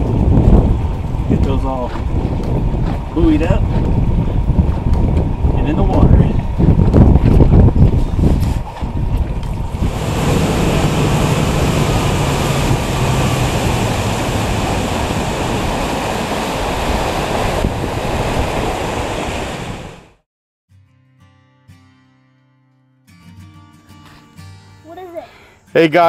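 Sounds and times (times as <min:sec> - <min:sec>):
wind buffeting microphone: 0:00.0 - 0:20.1
low engine hum: 0:00.0 - 0:20.2
water rushing along hull: 0:09.1 - 0:20.2.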